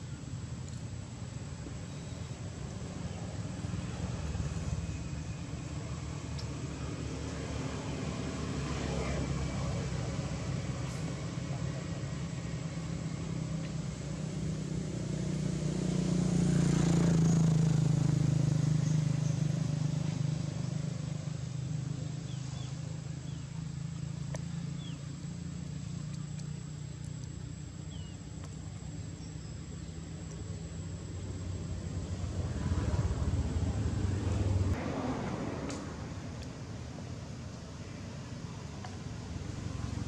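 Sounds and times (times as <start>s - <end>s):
motor vehicle hum: 0.0s - 40.0s
vehicle passing: 3.5s - 26.7s, 30.2s - 37.3s.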